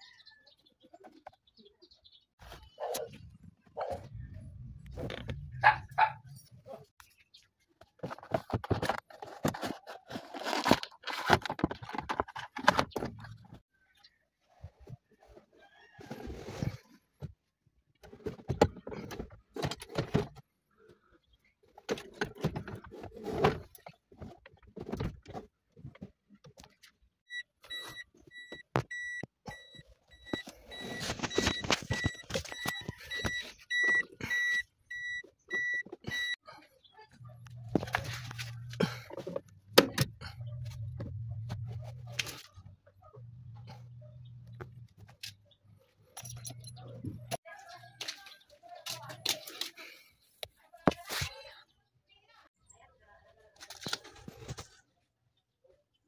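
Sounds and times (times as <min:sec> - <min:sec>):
car warning buzzer beeping: 0:27.3 - 0:36.4.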